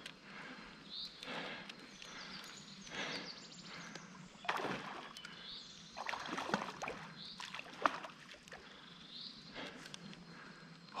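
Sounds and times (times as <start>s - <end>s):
fish splashing in water: 4.4s - 5.2s, 6.0s - 8.5s.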